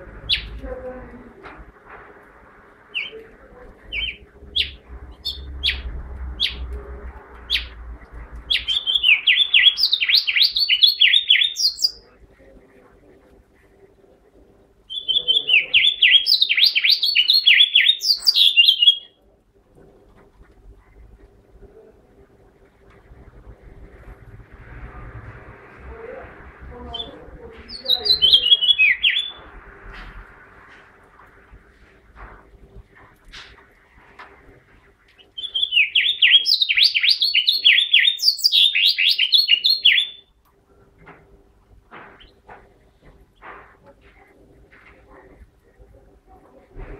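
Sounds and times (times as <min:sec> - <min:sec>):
finch singing warbling song: 0:00.2 - 0:00.6, 0:03.9 - 0:06.7, 0:07.5 - 0:07.8, 0:08.5 - 0:12.0, 0:14.9 - 0:19.1, 0:26.9 - 0:29.5, 0:35.2 - 0:40.3
finch singing warbling phrase: 0:26.9 - 0:29.4.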